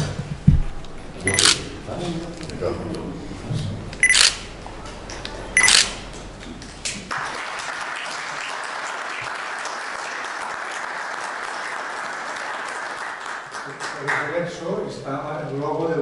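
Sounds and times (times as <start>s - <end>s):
camera shutter snap: 1.3s - 1.6s, 4.0s - 4.5s, 5.6s - 6.0s
audience applause: 7.1s - 14.6s.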